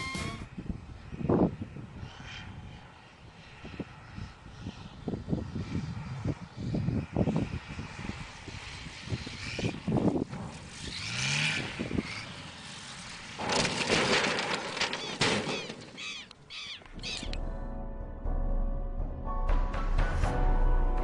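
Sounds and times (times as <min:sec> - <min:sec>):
wind on microphone: 0:00.0 - 0:12.4
propeller aircraft flying low: 0:00.0 - 0:18.3
sharp knocks of plane crash: 0:13.3 - 0:16.0.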